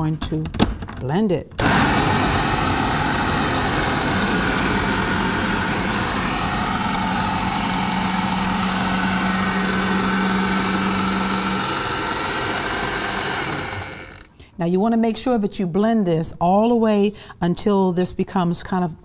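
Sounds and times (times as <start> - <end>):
food processor blending: 1.6 - 14.4.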